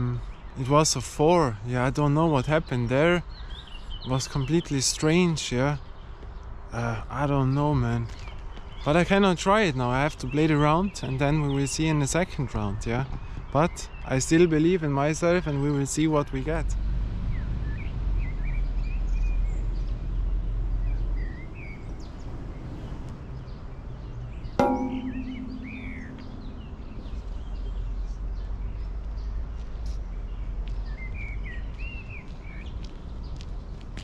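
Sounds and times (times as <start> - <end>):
birds chirping: 23.4 - 29.3
golf ball struck: 24.6 - 27.5
low outdoor rumble: 24.6 - 28.9.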